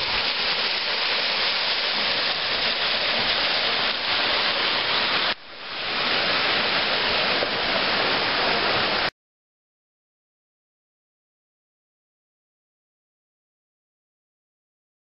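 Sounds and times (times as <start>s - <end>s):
waterfall rushing into pool: 0.0s - 9.1s.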